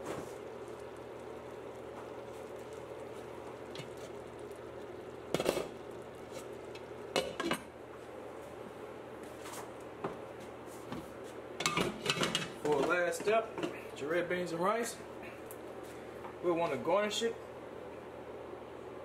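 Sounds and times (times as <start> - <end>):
pot bubbling: 0.0 - 14.0
pot lid clattering: 11.6 - 12.9.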